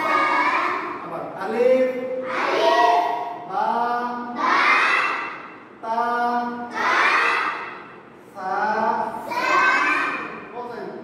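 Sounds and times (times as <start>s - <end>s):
children chanting: 0.0s - 1.0s, 2.2s - 3.5s, 4.2s - 5.6s, 6.6s - 7.9s, 9.1s - 10.4s.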